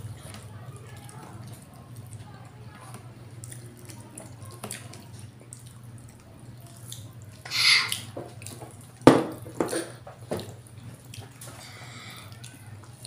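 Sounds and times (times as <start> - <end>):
faint smacking while eating: 0.0 - 13.0
hissy slurp: 7.5 - 8.1
cup knocking on table: 9.1 - 9.8.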